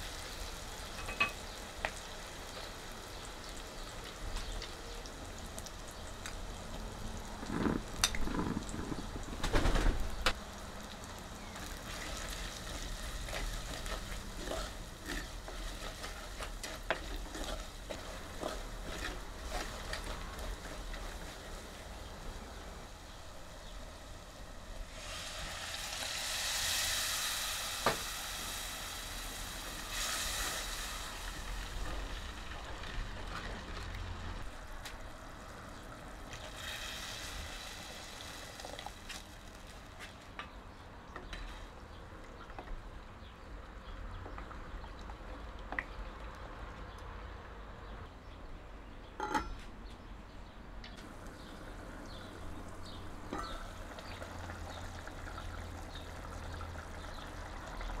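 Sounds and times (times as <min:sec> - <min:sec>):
water sizzling in hot oil: 0:00.0 - 0:34.7, 0:36.2 - 0:39.9
utensils clinking on pot: 0:01.0 - 0:01.4, 0:49.2 - 0:49.6, 0:53.3 - 0:53.8
curry bubbling: 0:02.2 - 0:09.4, 0:10.1 - 0:23.9, 0:51.0 - 0:58.0.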